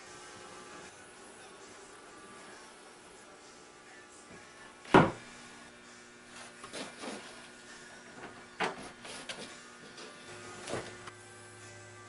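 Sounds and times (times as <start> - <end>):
wooden boards knocking on workbench: 4.9 - 5.2.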